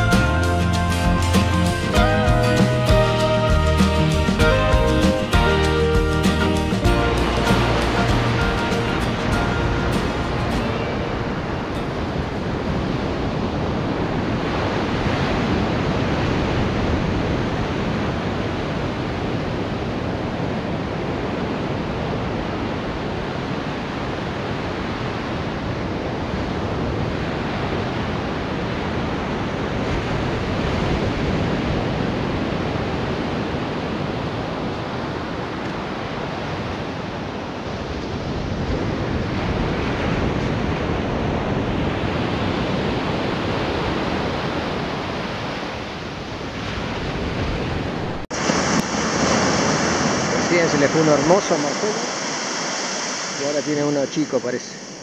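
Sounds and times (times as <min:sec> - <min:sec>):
ocean surf breaking: 0:00.0 - 0:55.0
wind buffeting microphone: 0:24.2 - 0:55.0.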